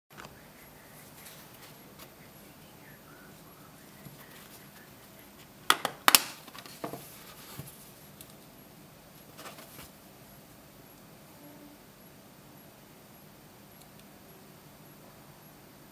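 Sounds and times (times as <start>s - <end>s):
plastic phone cover clips snapping: 5.7s - 6.5s.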